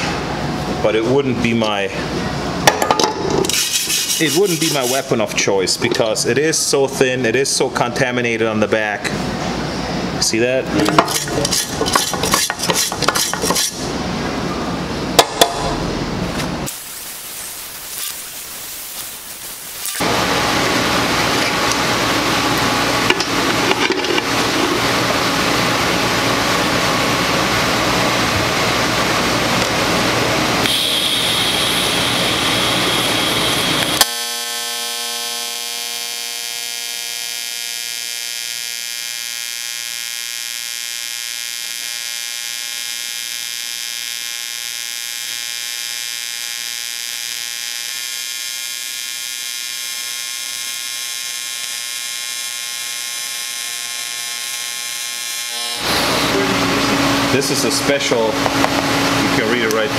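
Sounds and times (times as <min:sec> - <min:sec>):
electric buzz of arc welding: 0:02.6 - 0:05.2, 0:10.8 - 0:14.0, 0:15.2 - 0:59.9
loud noisy hiss: 0:15.6 - 0:21.0, 0:30.1 - 0:34.0, 0:55.1 - 0:58.4.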